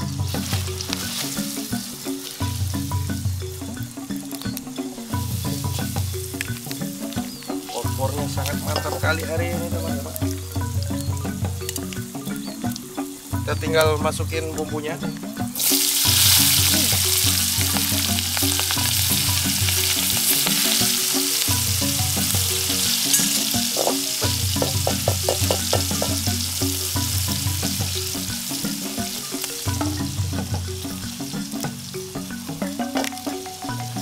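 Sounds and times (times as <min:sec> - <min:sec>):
wooden spatula scraping wok: 0:00.0 - 0:02.6
food sizzling in hot oil: 0:00.0 - 0:34.0.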